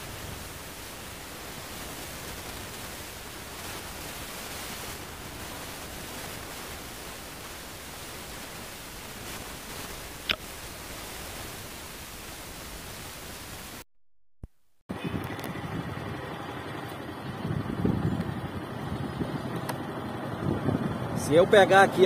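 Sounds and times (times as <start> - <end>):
steady hiss: 0.0 - 13.8.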